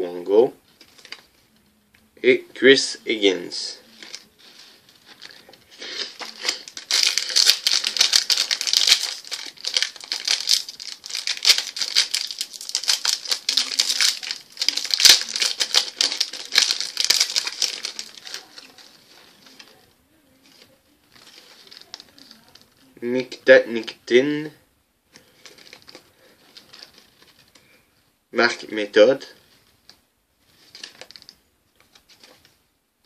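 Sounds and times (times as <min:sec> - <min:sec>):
card pack wrapper crinkling and tearing: 0:03.9 - 0:19.8, 0:20.4 - 0:22.8, 0:25.2 - 0:27.6, 0:30.5 - 0:32.4.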